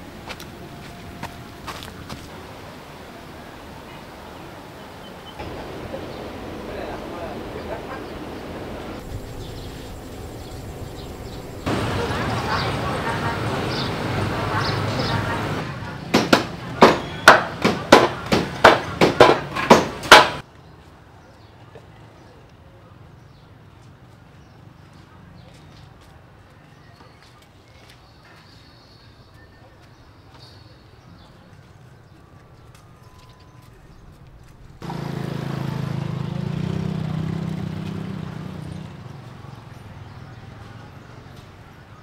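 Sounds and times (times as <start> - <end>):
small engine humming: 4.8 - 15.6, 34.8 - 39.1
sharp chopping strikes: 16.1 - 20.4.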